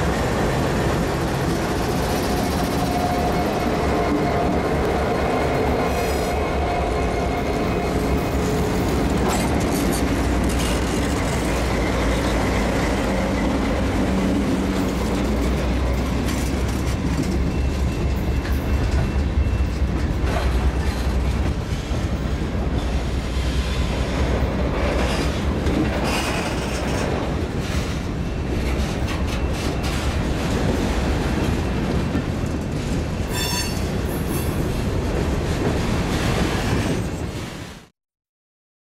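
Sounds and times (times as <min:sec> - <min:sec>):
diesel locomotive engines: 0:00.0 - 0:37.8
freight cars rumbling on rails: 0:00.0 - 0:37.9
high wheel squeal: 0:33.2 - 0:34.0.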